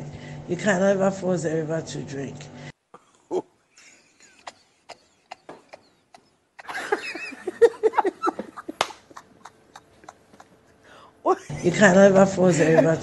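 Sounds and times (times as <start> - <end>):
person laughing: 3.3 - 10.7, 12.6 - 13.0.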